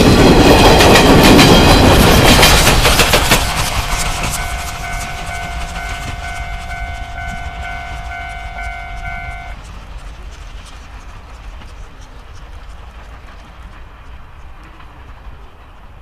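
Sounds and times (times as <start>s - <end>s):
train wheels rumbling on rails: 0.0s - 16.0s
steam whistle blast: 3.3s - 9.6s.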